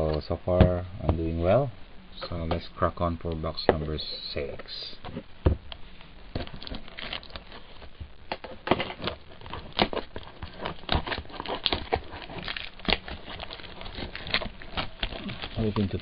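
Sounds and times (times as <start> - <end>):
plastic shrink wrap crinkling: 6.3 - 16.0.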